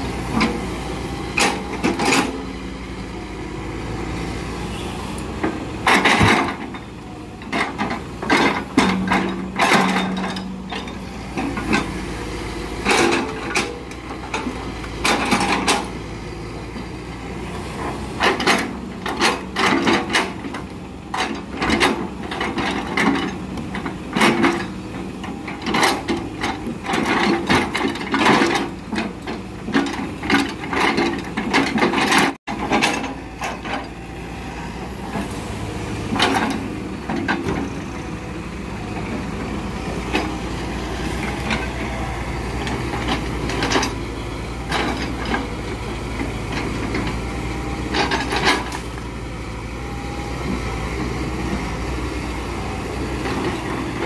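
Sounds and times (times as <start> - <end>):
diesel engine running: 0.0 - 54.0
logs knocking and clunking: 5.4 - 6.8.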